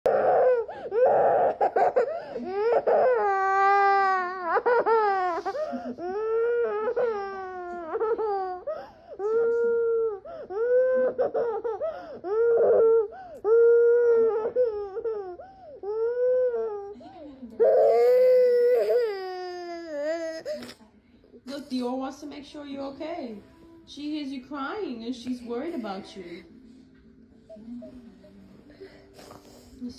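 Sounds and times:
small child crying: 0.1s - 16.9s.

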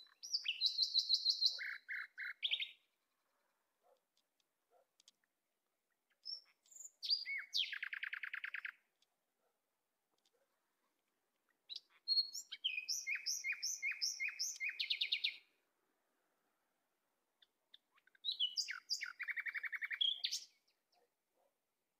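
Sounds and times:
songbird singing with trill: 0.0s - 2.9s, 5.9s - 9.0s, 11.5s - 15.6s, 17.4s - 21.1s.

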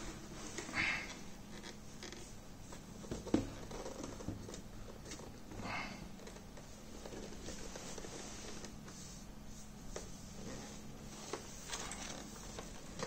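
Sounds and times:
plastic rubbing and scraping in box: 6.2s - 13.0s.

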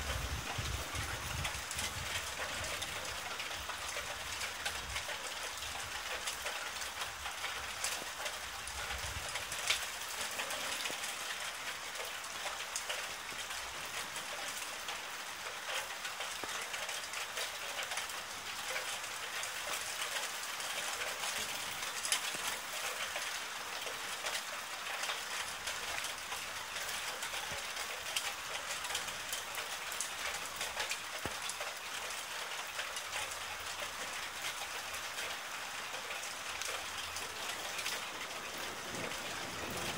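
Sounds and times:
steady rain falling: 0.0s - 39.9s.

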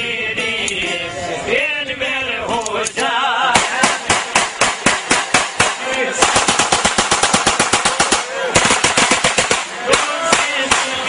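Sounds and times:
men singing folk song: 0.0s - 4.6s, 5.4s - 6.4s, 9.6s - 11.0s
handgun shots fired rapidly: 3.6s - 11.0s.

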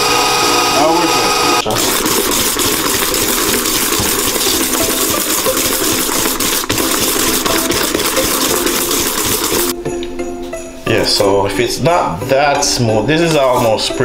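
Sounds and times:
faint motor hum: 0.0s - 9.6s
mixer whisk whirring: 0.0s - 9.8s.

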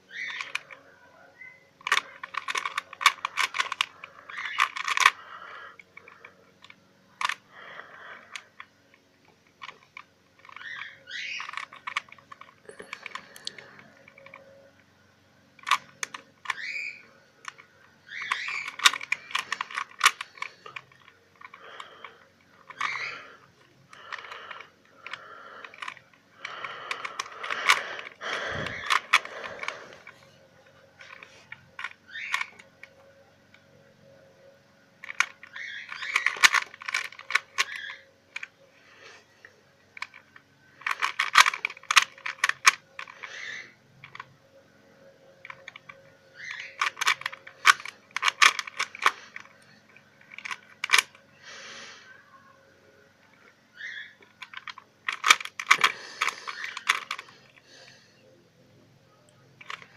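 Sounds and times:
puzzle cube layers clicking: 1.8s - 5.3s, 9.6s - 14.4s, 17.4s - 30.3s, 35.0s - 38.5s, 40.0s - 43.4s, 45.4s - 51.2s, 53.8s - 57.5s, 59.6s - 59.9s.

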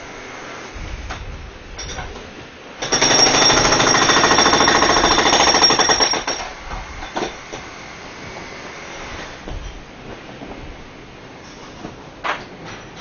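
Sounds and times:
jackhammer hammering: 2.8s - 7.7s.

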